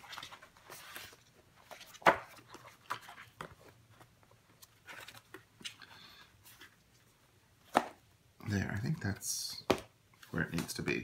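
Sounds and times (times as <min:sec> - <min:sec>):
paper rustling: 0:00.0 - 0:07.9.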